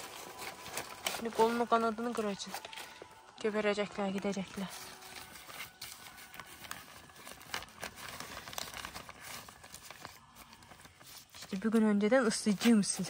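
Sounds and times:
plastic film crinkling: 0.0 - 13.0.

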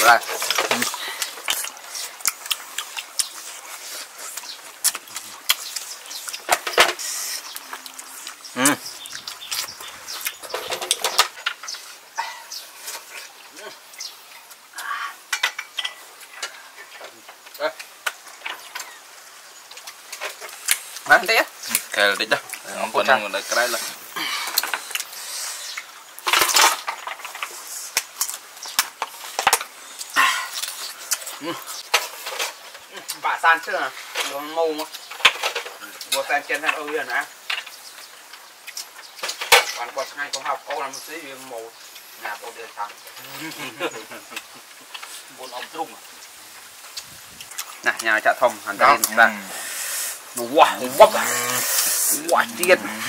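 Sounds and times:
slurping snails from shells: 0.0 - 53.0
clicks and smacks of eating snails: 0.4 - 3.6, 4.3 - 11.7, 24.5 - 32.1, 34.8 - 40.5.

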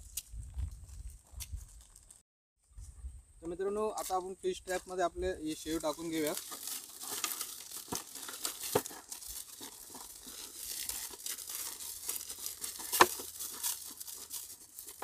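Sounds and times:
plastic snack packet crinkling: 5.6 - 15.0
crunchy snack pouring into bottle: 5.7 - 15.0.

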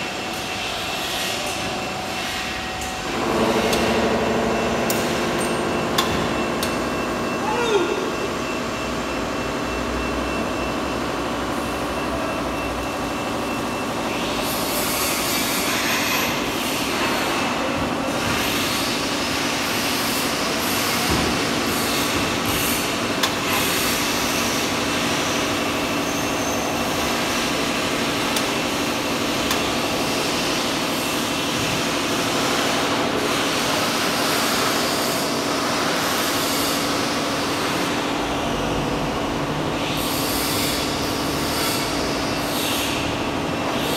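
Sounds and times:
electric gear motors humming: 0.0 - 17.6.

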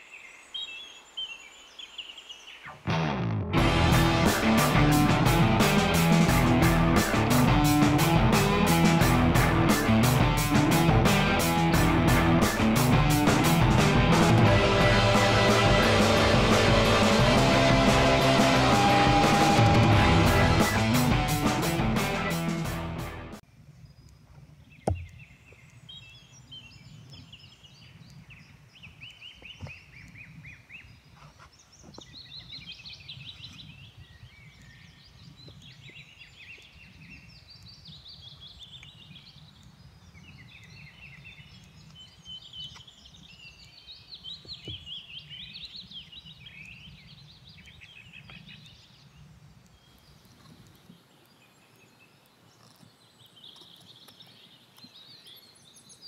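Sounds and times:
songbirds chirping trills: 0.0 - 2.9, 23.5 - 56.0
faint knocks of hatchet handling: 24.8 - 25.2.

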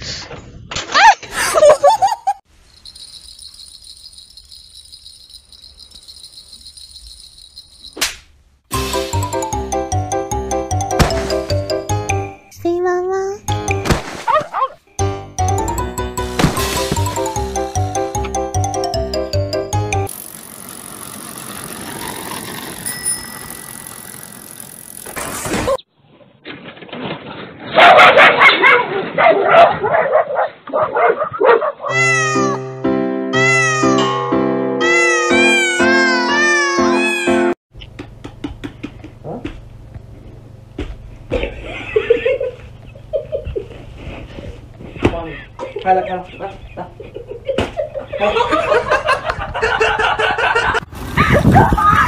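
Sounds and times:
music: 8.7 - 12.5, 13.5 - 14.0, 15.0 - 20.1, 31.9 - 37.6
pedal cart rolling on pavement: 20.1 - 25.8
cart tipping over with clatter: 20.2 - 25.8.

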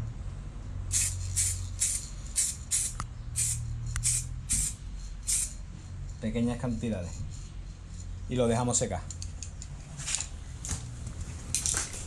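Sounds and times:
aerosol spray can hissing: 0.9 - 5.6.

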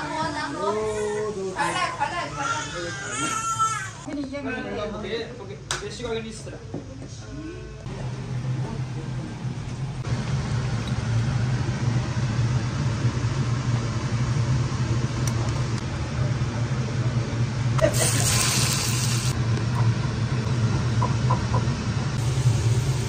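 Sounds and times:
low mechanical hum: 6.8 - 23.0.

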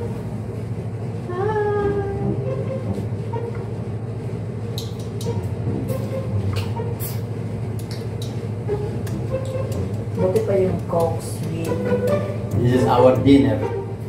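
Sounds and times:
low room hum: 0.0 - 14.0
sharp clicks and ticks: 4.7 - 5.4, 7.8 - 13.3.

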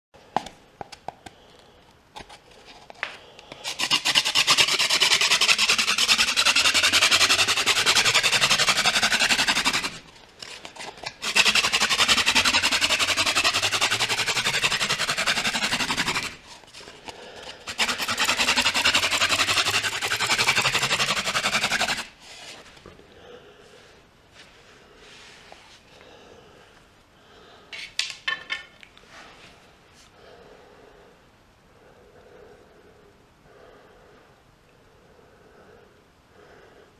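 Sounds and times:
wooden fire drill rubbing: 3.6 - 22.8.

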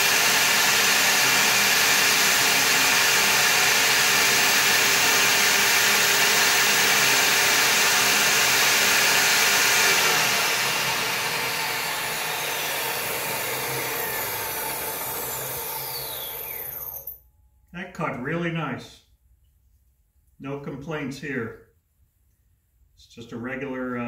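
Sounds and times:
saw blade winding down whine: 0.0 - 17.2
table saw running: 0.0 - 17.2.

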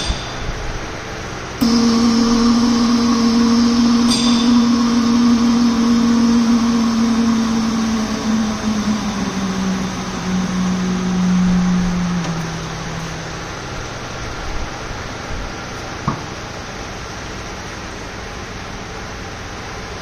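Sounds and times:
vacuum pump humming: 1.6 - 15.2.

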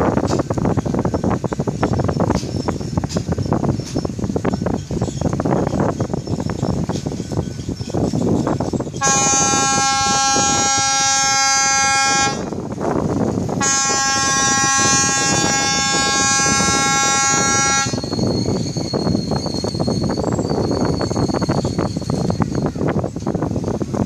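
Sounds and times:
rushing background noise: 0.0 - 24.0
ferry horn blasts: 9.0 - 12.6, 13.6 - 18.1.

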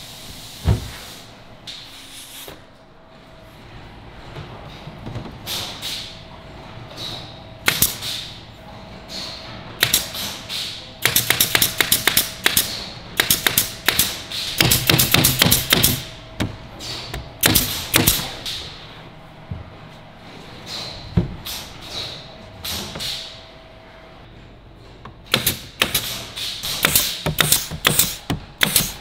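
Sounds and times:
nail gun firing: 7.7 - 8.2, 9.8 - 16.1, 17.4 - 18.6, 25.3 - 29.0.

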